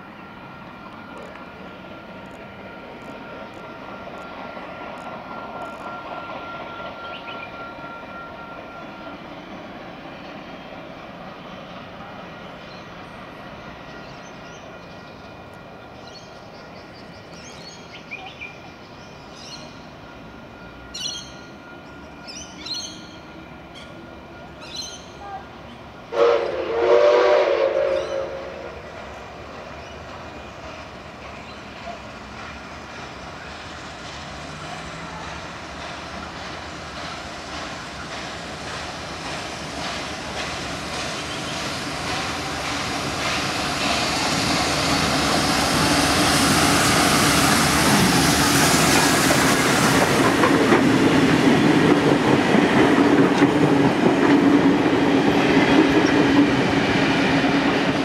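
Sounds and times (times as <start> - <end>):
steam train running: 0.0 - 58.0
steam locomotive whistle: 5.2 - 9.1, 26.1 - 28.9.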